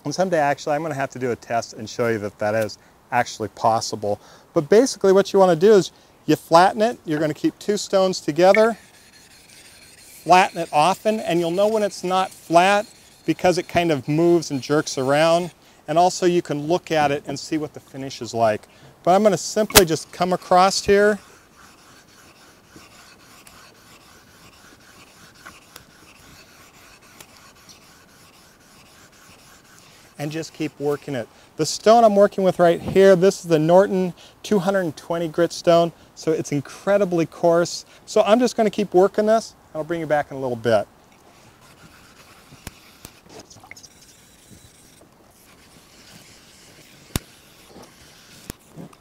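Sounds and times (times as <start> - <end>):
stone scraping on metal plate: 8.4 - 15.5, 41.4 - 48.9.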